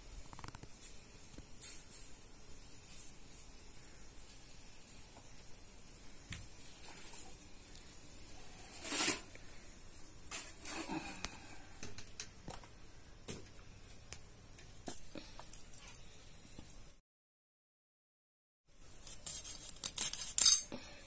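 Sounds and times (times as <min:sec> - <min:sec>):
rustling scrape: 0:08.3 - 0:09.4.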